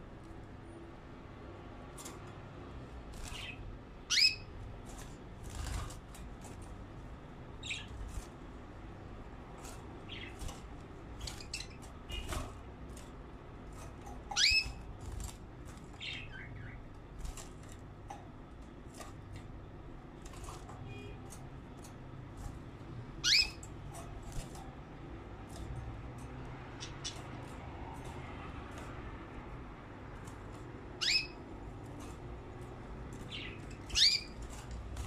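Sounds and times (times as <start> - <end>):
canaries chirping: 2.0 - 35.0
bird wings fluttering: 4.8 - 6.8.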